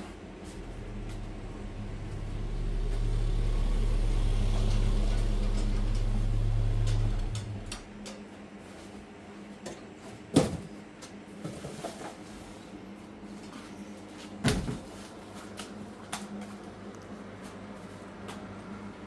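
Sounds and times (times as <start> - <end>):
steady low hum: 0.0 - 19.0
boxes knocking and rustling: 9.8 - 12.6, 13.6 - 15.6.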